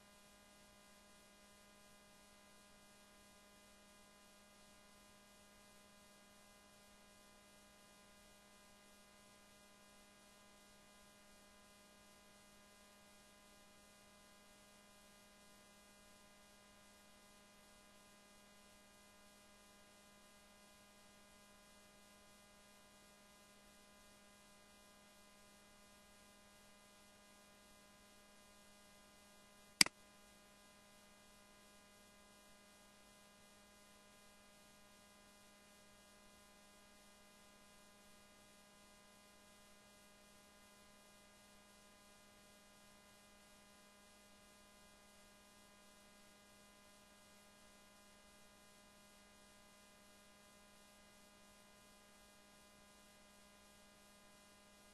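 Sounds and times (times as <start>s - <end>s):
faint mains hum: 0.0s - 54.9s.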